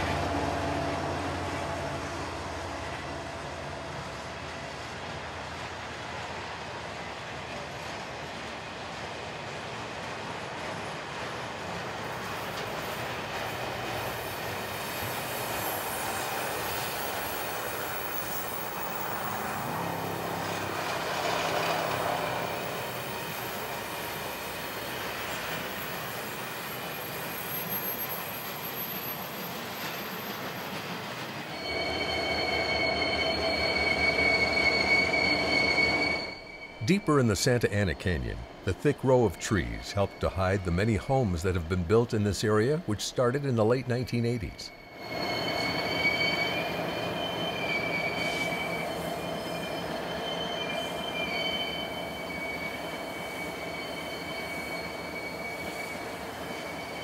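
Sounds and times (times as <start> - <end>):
train wheels rumbling on rails: 0.0 - 57.0
high-pitched squealing: 31.5 - 57.0.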